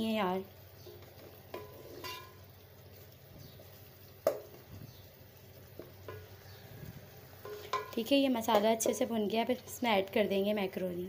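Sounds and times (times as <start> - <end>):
food sizzling in a pot: 0.0 - 11.0
spoon knocking against a pot: 5.8 - 6.3, 7.4 - 9.0.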